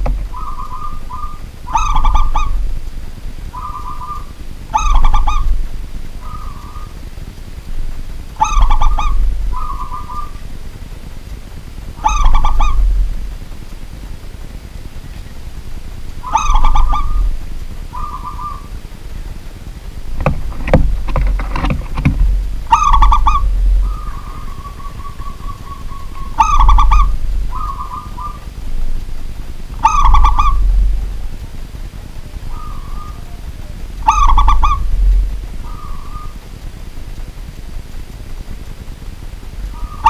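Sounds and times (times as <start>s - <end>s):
dove cooing: 0.0s - 10.7s, 11.9s - 13.5s, 15.0s - 19.4s, 20.1s - 37.3s, 39.6s - 40.0s
knocking: 20.2s - 22.3s.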